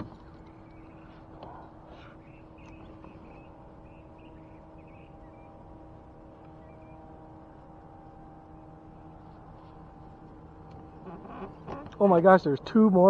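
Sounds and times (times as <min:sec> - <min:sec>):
steady low hum: 0:00.0 - 0:13.0.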